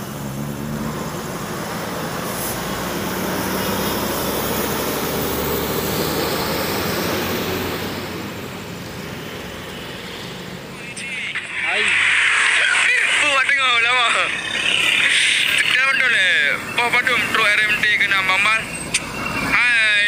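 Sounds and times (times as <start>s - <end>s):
bus diesel engine running: 0.0s - 20.0s.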